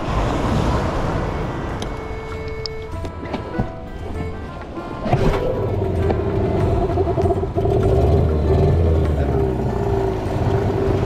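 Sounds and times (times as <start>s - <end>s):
outboard motor revving: 5.2s - 11.0s.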